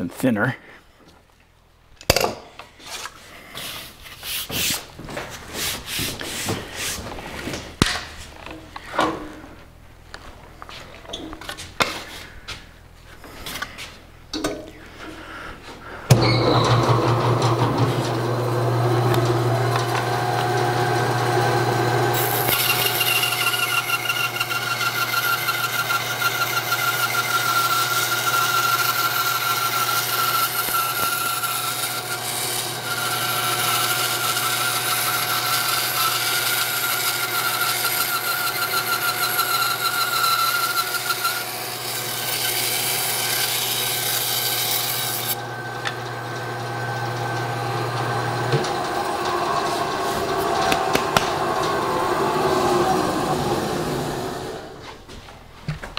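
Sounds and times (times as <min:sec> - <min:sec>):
bandsaw cutting board: 0:02.9 - 0:08.0, 0:16.1 - 0:54.8
bandsaw humming: 0:15.2 - 0:54.8
wood knocking: 0:50.6 - 0:51.4.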